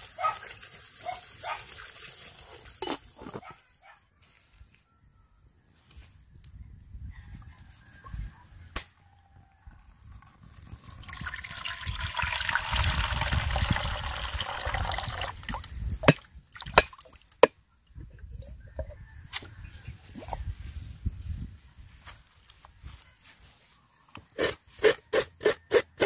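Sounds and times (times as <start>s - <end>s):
coconut water splashing into bowl: 10.2s - 17.5s.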